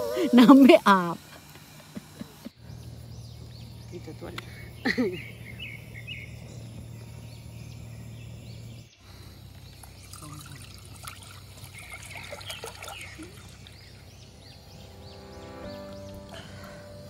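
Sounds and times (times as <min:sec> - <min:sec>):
water pouring into pot: 0:09.9 - 0:13.8.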